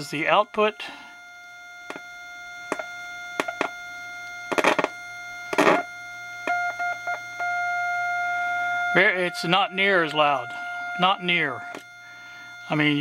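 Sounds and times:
steady test tone from speaker: 0.0 - 13.0
scratchy crackle: 4.5 - 5.9.

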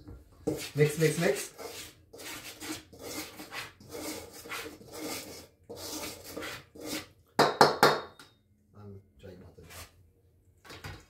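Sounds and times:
flour stirred in metal bowl: 0.4 - 7.2.

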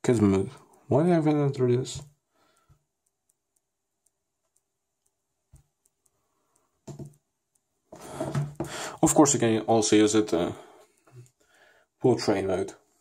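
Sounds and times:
fingers tapping touchscreen: 1.2 - 9.0.

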